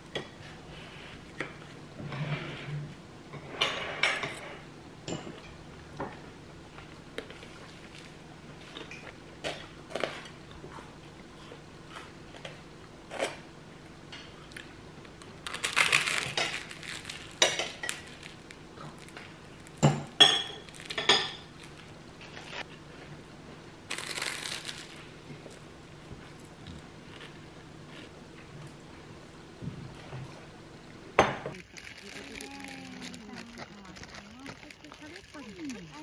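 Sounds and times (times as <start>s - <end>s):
cutlery clinking on ceramic plate: 19.8s - 21.5s
crunchy bites into toast: 23.9s - 25.1s.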